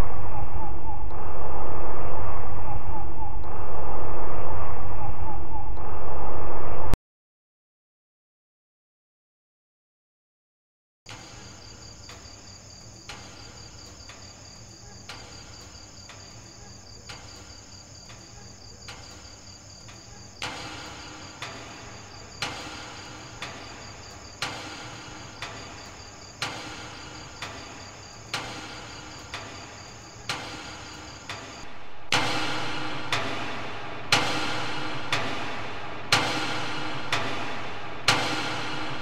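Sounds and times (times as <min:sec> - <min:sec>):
crickets chirping: 0:11.1 - 0:31.7.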